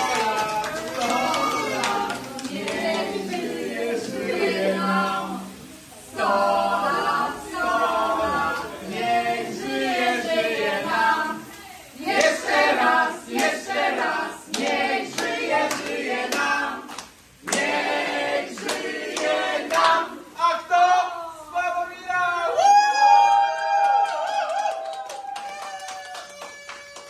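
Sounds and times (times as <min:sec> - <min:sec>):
hand-clapping: 0:00.0 - 0:03.2, 0:12.1 - 0:12.4, 0:13.3 - 0:13.6, 0:14.5 - 0:20.0, 0:23.8 - 0:27.0
group singing together: 0:00.0 - 0:21.1.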